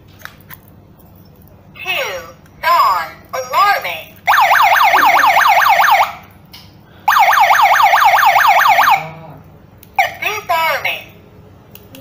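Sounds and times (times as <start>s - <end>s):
alarm siren warbling whoop: 4.3s - 6.2s, 7.1s - 9.2s.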